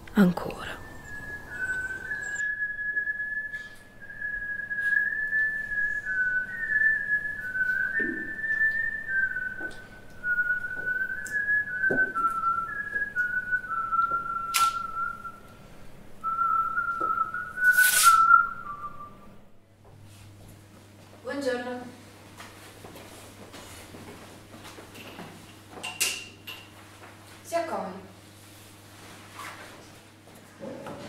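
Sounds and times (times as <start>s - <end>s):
person whistling a slow tune: 0.6s - 15.5s, 16.2s - 19.3s.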